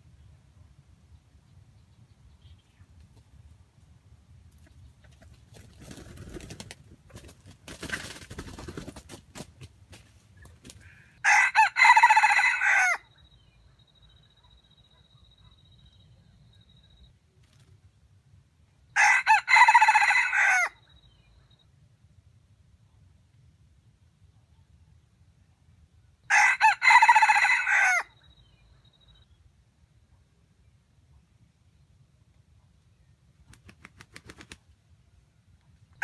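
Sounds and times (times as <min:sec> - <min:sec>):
rooster crowing: 0:11.2 - 0:13.1, 0:19.0 - 0:20.8, 0:26.3 - 0:28.2.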